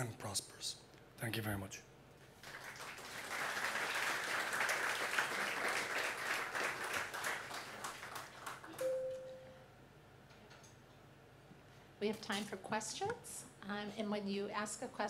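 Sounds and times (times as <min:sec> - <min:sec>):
audience applauding: 0:02.4 - 0:08.8
brief steady tone: 0:08.8 - 0:09.7.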